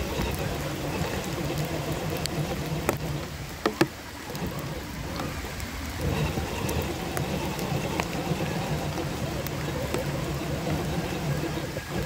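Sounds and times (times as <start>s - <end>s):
electric motor drive drone: 0.0s - 12.0s
sharp knocks: 3.6s - 4.0s.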